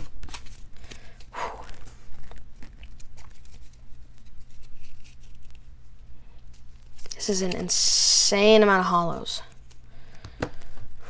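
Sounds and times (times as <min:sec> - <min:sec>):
cards rustling and tapping: 0:00.0 - 0:05.7.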